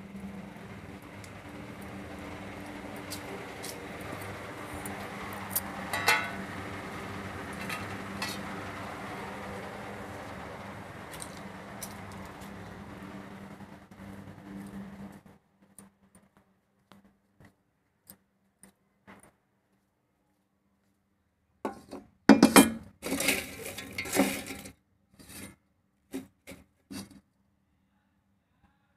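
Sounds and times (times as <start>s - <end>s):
clinks against bowl: 5.9s - 6.4s
dry peels rustling and crackling: 23.0s - 24.7s.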